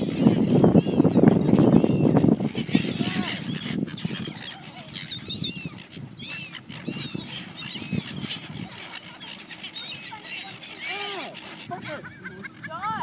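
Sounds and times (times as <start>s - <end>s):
gulls squawking: 0.0s - 13.0s.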